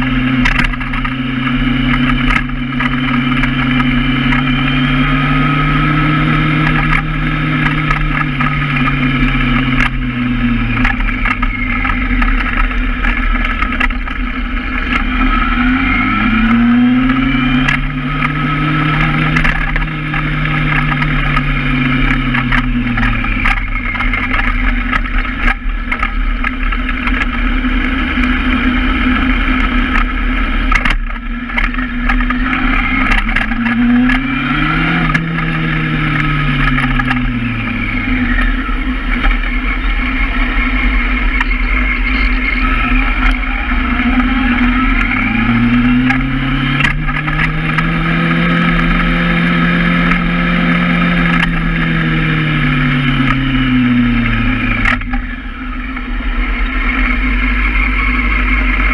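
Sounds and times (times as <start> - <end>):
motorcycle engine revving: 0.0 - 58.9.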